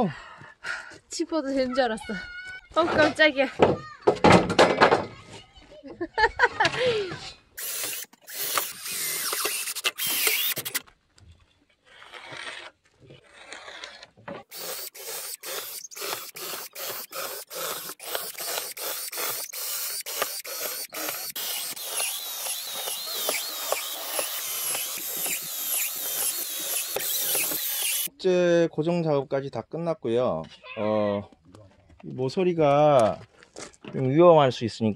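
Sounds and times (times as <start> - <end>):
cordless drill driving screws: 7.6 - 10.8, 14.4 - 28.1
drill bit squealing: 7.6 - 10.8, 14.5 - 28.1.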